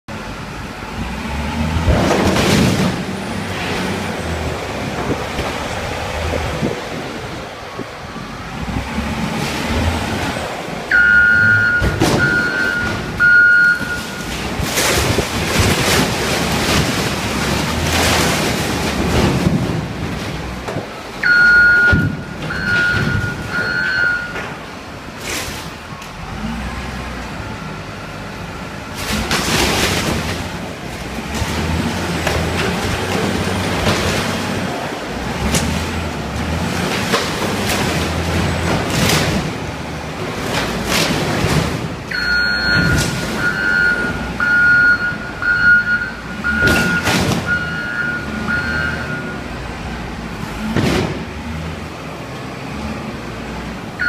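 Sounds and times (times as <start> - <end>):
diesel engine under load: 0.0 - 54.0
back-up alarm beeping: 10.9 - 14.2, 21.2 - 24.4, 42.1 - 49.5.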